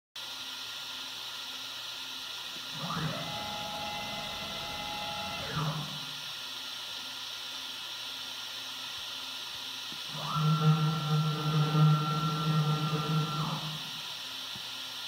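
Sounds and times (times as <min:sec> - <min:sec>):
router running with steady hiss: 0:00.2 - 0:15.0
machine whine: 0:02.6 - 0:06.5, 0:10.1 - 0:14.3.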